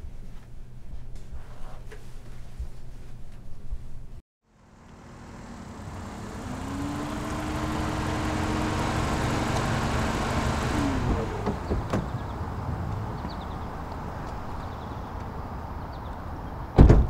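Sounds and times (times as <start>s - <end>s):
car approaching and stopping: 4.4s - 16.8s.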